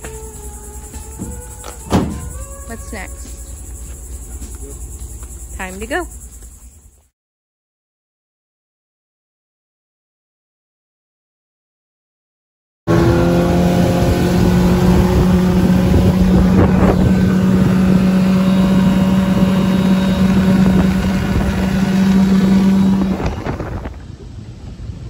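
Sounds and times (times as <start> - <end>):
outboard motor running: 0.0 - 6.7, 12.9 - 24.0
wind on microphone: 13.5 - 25.0.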